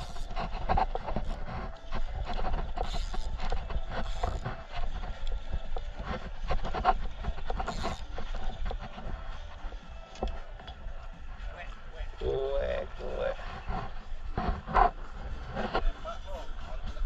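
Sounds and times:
fishing reel clicking: 0.0s - 0.4s, 1.2s - 6.4s, 7.1s - 8.8s.

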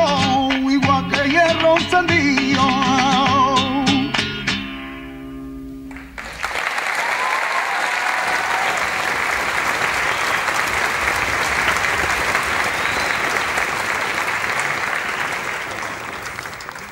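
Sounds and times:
audience applauding: 5.9s - 16.9s.

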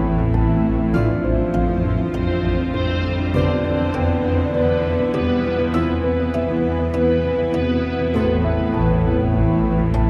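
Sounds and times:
music with held chords and light beat: 0.0s - 10.0s.

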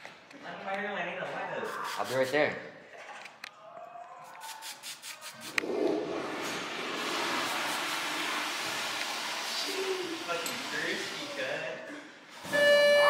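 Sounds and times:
aerosol spray hissing: 4.5s - 5.6s.

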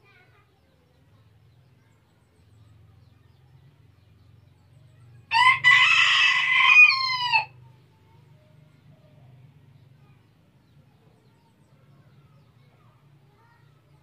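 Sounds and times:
rooster crowing: 5.3s - 7.6s.

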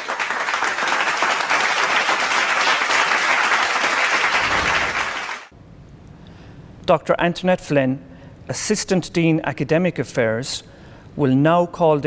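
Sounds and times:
crowd applause: 0.0s - 5.5s.

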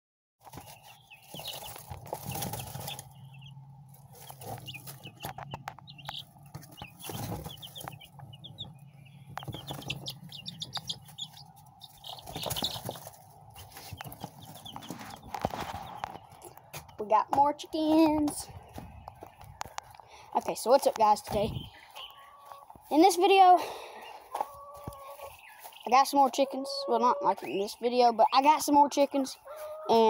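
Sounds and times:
chicks peeping: 0.4s - 30.0s
steady low hum: 0.8s - 20.5s.

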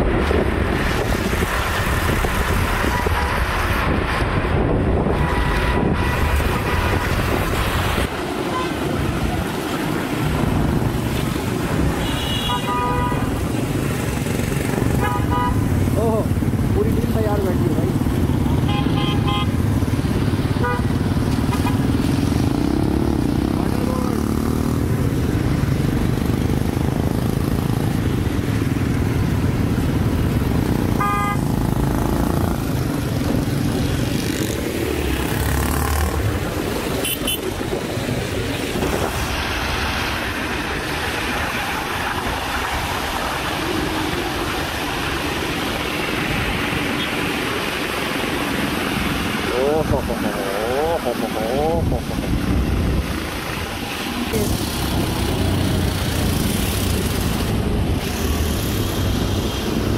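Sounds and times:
traffic rumble: 0.0s - 59.9s
car horn toots: 12.0s - 13.3s, 15.0s - 15.6s, 18.7s - 19.5s, 31.0s - 31.4s, 37.0s - 37.5s.

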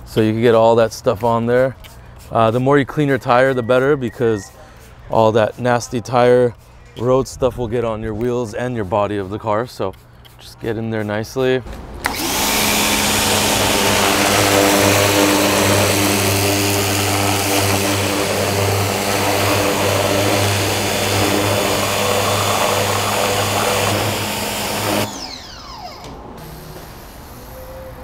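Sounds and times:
pressure washer motor hum: 11.7s - 27.7s
water jet hissing: 12.0s - 25.2s.

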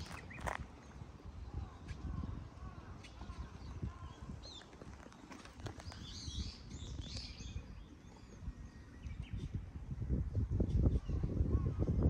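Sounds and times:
small birds chirping: 0.0s - 9.8s.

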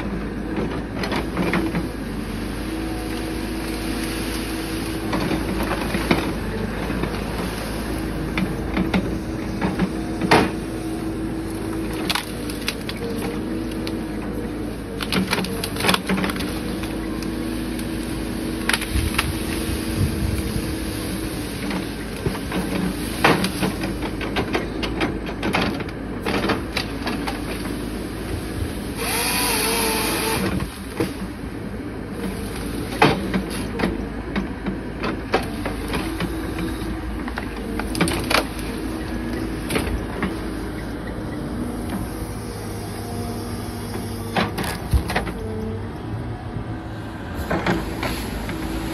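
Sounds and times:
excavator diesel engine running: 0.0s - 48.9s
branches snapping: 11.7s - 14.0s, 15.0s - 18.0s, 18.6s - 19.7s
saw whining through trunk: 28.9s - 31.2s.

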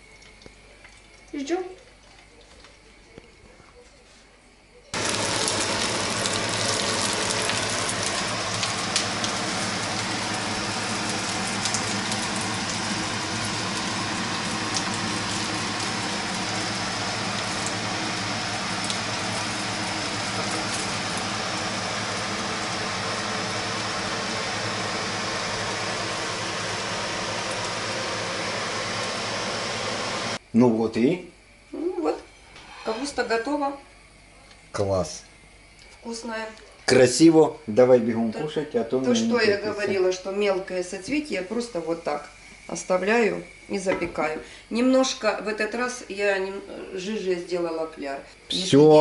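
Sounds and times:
range hood fan hum: 4.5s - 49.0s
batter frying in oil: 4.9s - 30.4s.

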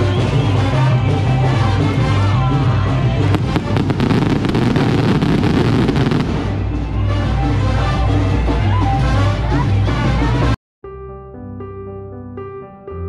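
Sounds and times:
music playing: 0.0s - 13.0s
fireworks crackling: 3.2s - 6.9s.

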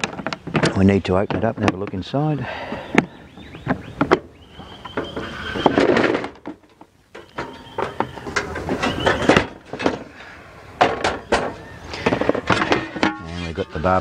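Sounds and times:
plastic case lid squeaking: 3.0s - 6.5s, 7.2s - 9.9s
metal stove clattering against case: 4.9s - 10.1s, 10.8s - 13.5s.

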